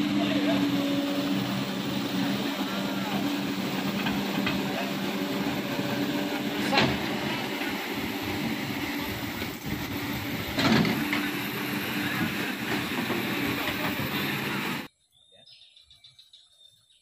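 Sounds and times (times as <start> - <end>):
excavator bucket digging earth: 0.0 - 14.9
excavator diesel engine running: 0.0 - 14.9
water rushing: 0.0 - 14.9.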